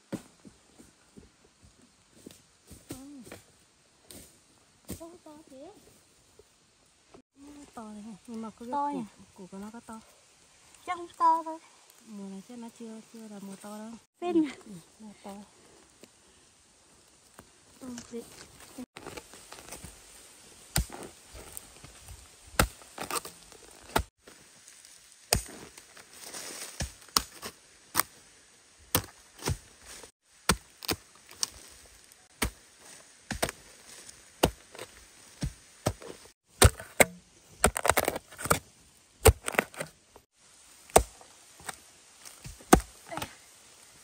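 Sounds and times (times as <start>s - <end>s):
digging tool striking: 34.4s - 38.6s, 40.9s - 41.8s.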